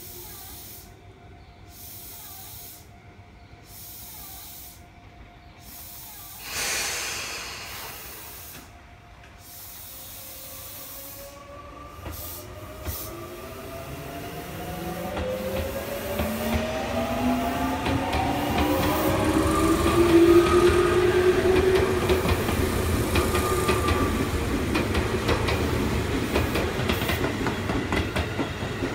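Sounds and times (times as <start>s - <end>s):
compressed-air hiss: 0.0s - 1.0s, 1.7s - 2.9s, 3.6s - 4.8s, 5.6s - 11.4s, 12.0s - 13.3s
electric train humming: 0.0s - 28.9s.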